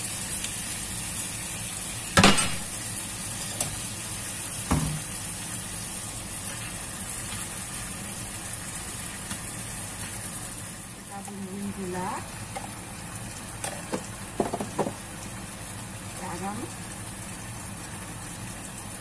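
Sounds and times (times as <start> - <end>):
food sizzling in frying pan: 0.0 - 19.0
loud sharp knock: 2.2 - 2.6.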